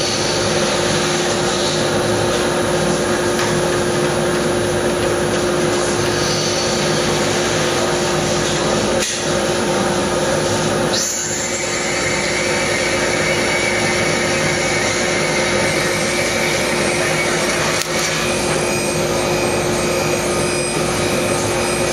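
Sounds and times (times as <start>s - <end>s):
drill cutting into metal: 5.8s - 8.3s, 10.9s - 21.9s.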